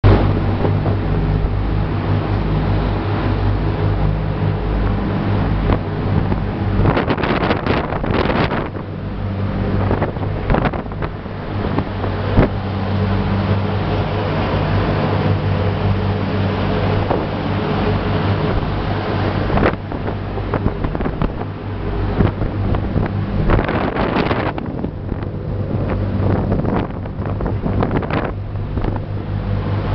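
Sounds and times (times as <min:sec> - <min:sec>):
sea along hull: 0:00.0 - 0:29.9
ship engine droning: 0:00.0 - 0:29.9
wind rushing on microphone: 0:00.0 - 0:29.9.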